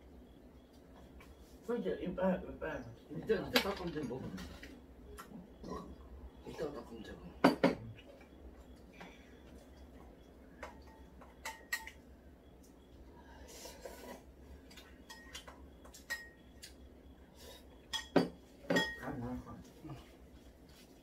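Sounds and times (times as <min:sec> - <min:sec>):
utensils clinking on ceramic bowl: 0:10.8 - 0:12.0, 0:14.7 - 0:16.4, 0:17.9 - 0:19.1.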